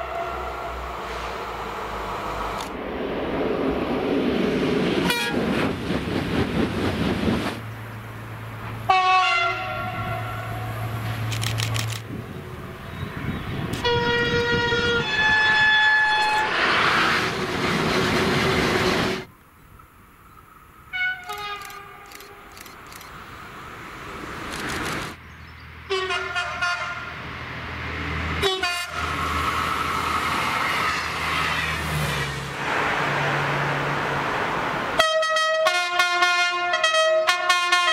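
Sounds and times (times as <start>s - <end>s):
short train horn blasts: 0.0s - 1.4s, 5.0s - 5.4s, 8.9s - 10.9s, 13.8s - 16.5s, 20.9s - 22.4s, 25.9s - 27.1s, 28.4s - 29.1s, 35.0s - 37.9s
train passing: 0.0s - 37.4s
two-note train horn: 5.1s - 5.4s, 8.9s - 10.8s, 13.8s - 16.4s.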